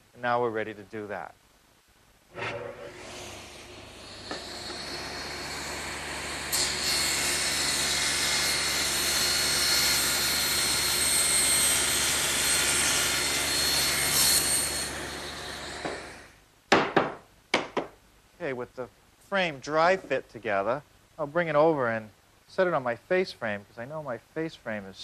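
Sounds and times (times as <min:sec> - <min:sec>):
table saw cutting board: 0:02.3 - 0:16.3.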